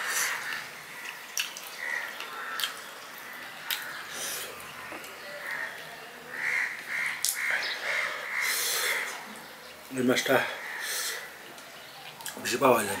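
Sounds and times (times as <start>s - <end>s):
man chewing wetly: 0.3s - 5.9s.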